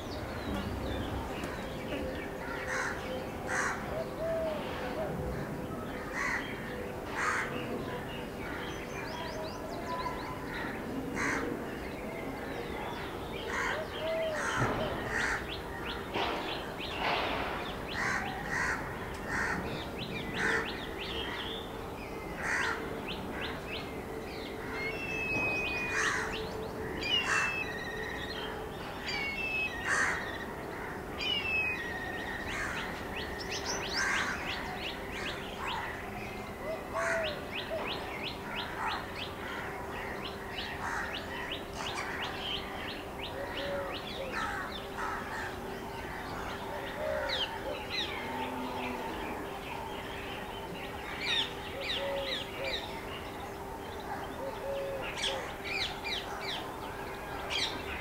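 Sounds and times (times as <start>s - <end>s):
harsh bird calls: 24.5s - 58.0s.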